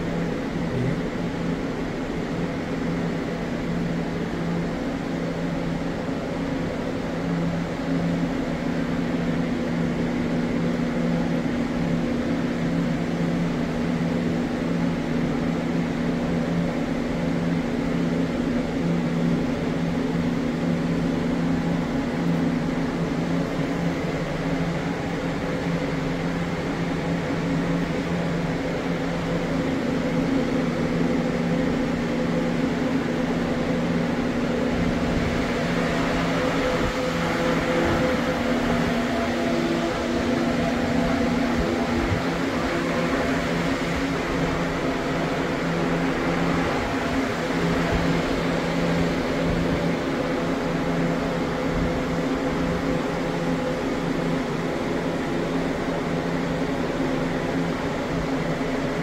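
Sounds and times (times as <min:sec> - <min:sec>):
ventilation fans running: 0:00.0 - 0:59.0.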